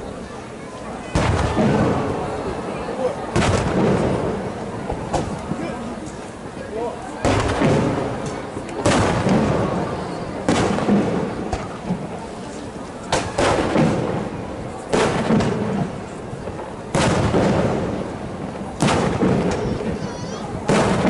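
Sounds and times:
firework shells bursting: 13.1 - 21.0.

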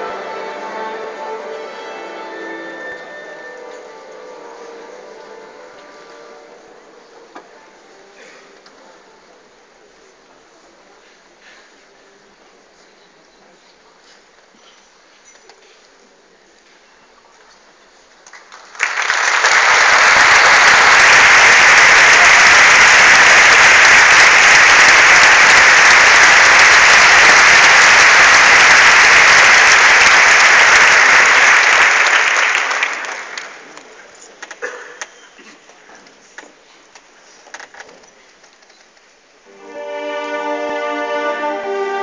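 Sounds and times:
audience applauding: 18.3 - 34.0.

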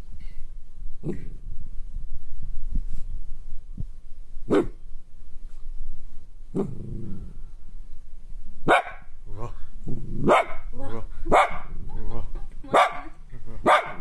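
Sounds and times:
dog barking: 8.7 - 9.1, 10.3 - 10.6, 11.3 - 11.7, 12.7 - 14.0.

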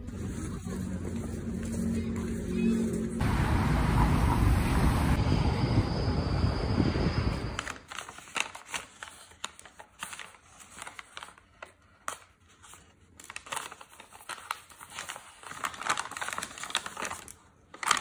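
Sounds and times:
paper bag rustling: 7.6 - 18.0.

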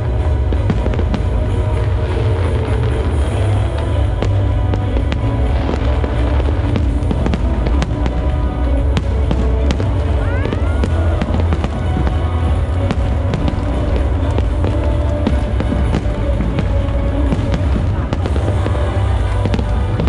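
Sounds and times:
fireworks bursting and crackling: 0.0 - 20.0
music playing: 0.0 - 20.0.

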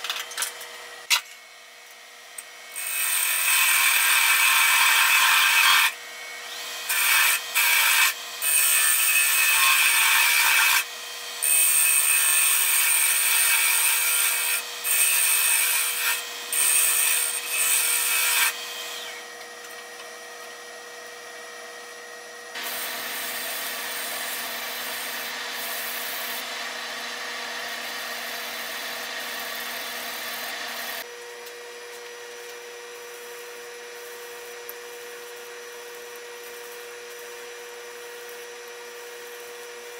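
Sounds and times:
lathe tool scraping wood: 22.6 - 31.0.

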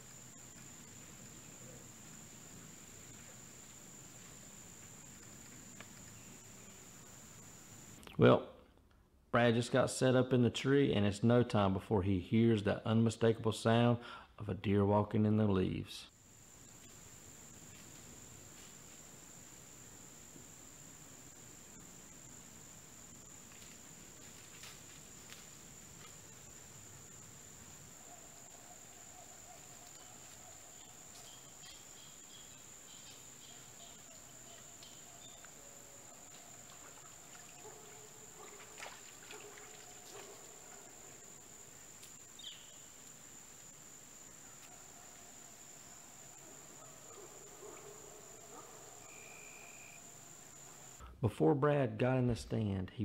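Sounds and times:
crickets trilling: 0.0 - 8.1, 16.1 - 51.0.

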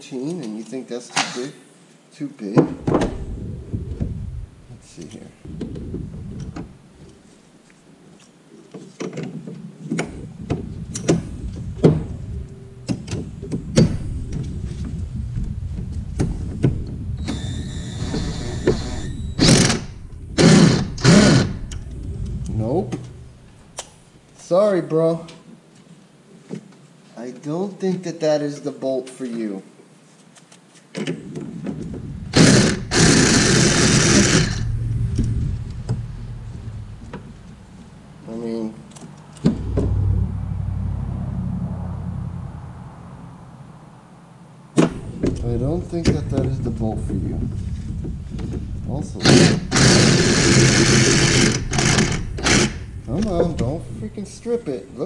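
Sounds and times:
loud noisy bursts: 17.2 - 24.1, 32.3 - 43.9, 49.2 - 53.1
metal rattling: 32.3 - 40.9.

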